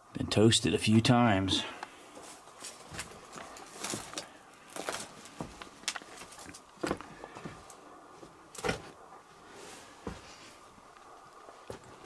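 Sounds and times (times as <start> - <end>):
footsteps on rocky ground: 2.1 - 9.0, 11.0 - 12.0.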